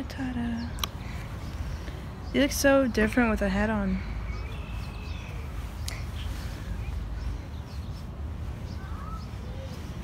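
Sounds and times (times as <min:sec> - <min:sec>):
high bird chirps: 0:04.0 - 0:09.9.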